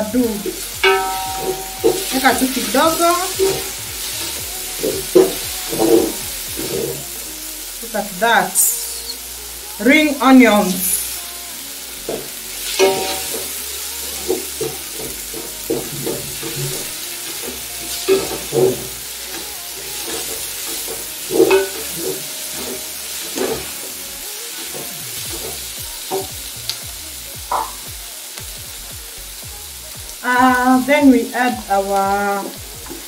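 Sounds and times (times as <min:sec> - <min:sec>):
onions sizzling in a pot: 0:00.0 - 0:33.0
wooden spoon stirring and scraping: 0:00.4 - 0:07.0, 0:12.1 - 0:26.3.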